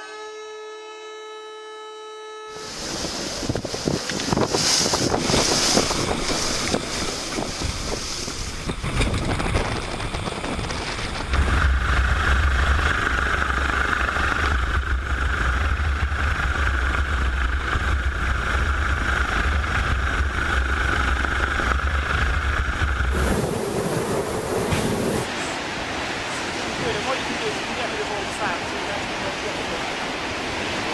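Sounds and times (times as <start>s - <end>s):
gusty wind: 2.5s - 30.9s
helicopter rotor and turbine hovering: 2.6s - 25.6s.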